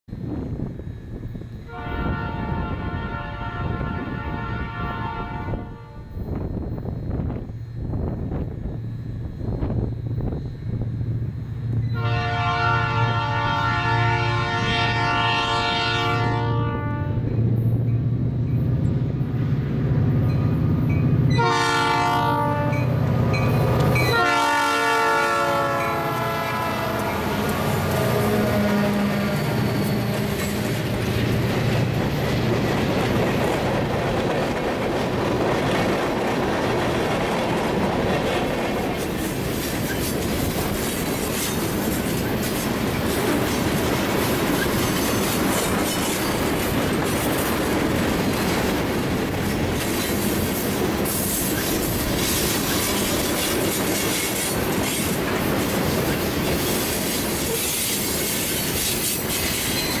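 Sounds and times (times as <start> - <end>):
freight train cars rolling past: 0.1 - 60.0
high-pitched wheel noise: 27.0 - 34.9.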